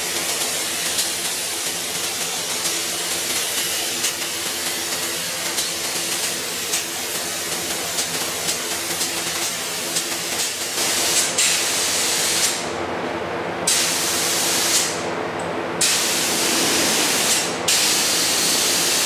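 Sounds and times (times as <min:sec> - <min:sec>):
spray gun hissing: 0:15.8 - 0:19.0.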